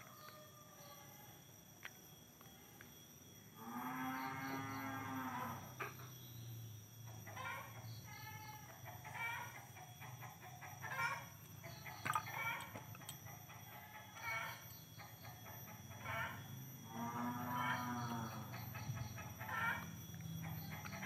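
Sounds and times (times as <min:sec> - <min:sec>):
chickens clucking: 0:08.8 - 0:14.6, 0:18.6 - 0:21.0.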